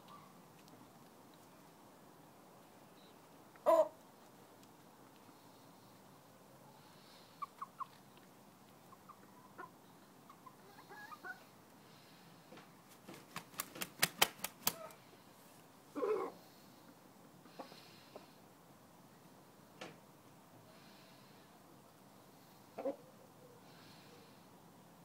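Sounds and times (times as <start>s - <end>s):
chickens clucking: 3.6s - 3.9s, 7.2s - 11.5s, 22.8s - 23.0s.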